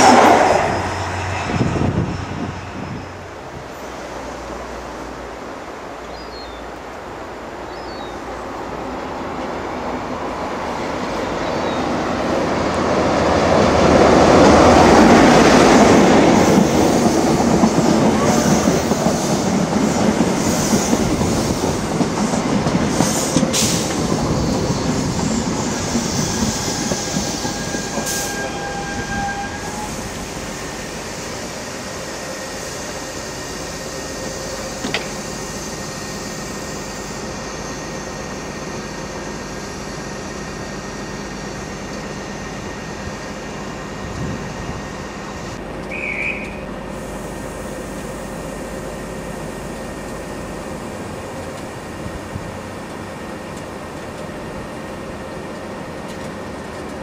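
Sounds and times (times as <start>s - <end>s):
diesel train engine: 0.0s - 57.0s
train wheels rolling: 9.0s - 57.0s
high wheel squeals: 24.3s - 39.6s.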